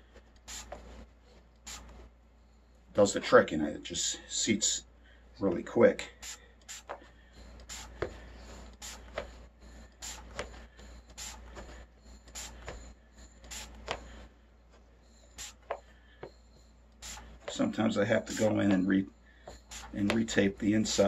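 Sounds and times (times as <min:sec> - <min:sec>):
spray bottle squirts: 0:00.4 - 0:00.8, 0:01.6 - 0:01.9, 0:06.2 - 0:07.0, 0:07.7 - 0:08.0, 0:08.8 - 0:09.2, 0:10.0 - 0:10.5, 0:11.2 - 0:11.4, 0:12.3 - 0:12.7, 0:13.5 - 0:14.0, 0:15.4 - 0:15.8, 0:17.0 - 0:17.3, 0:18.3 - 0:18.5, 0:19.6 - 0:20.1.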